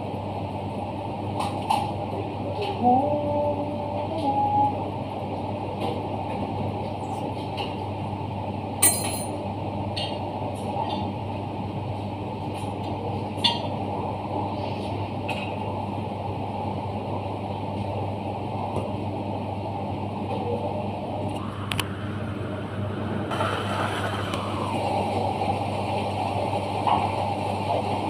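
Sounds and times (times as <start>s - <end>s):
machine humming: 19.4s - 28.0s.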